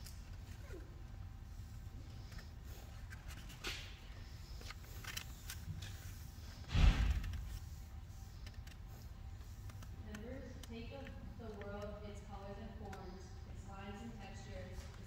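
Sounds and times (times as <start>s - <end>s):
low steady hum: 0.0s - 15.0s
thump with rush of noise: 6.7s - 7.4s.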